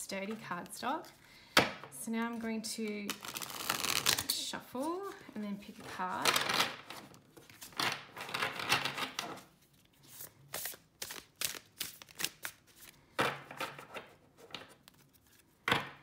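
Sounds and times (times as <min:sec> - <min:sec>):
cards being shuffled: 0:02.3 - 0:15.6.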